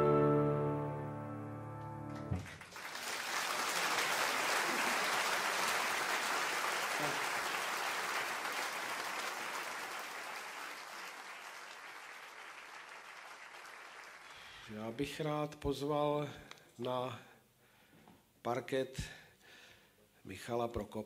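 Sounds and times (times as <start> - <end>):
audience applauding: 2.1 - 14.7.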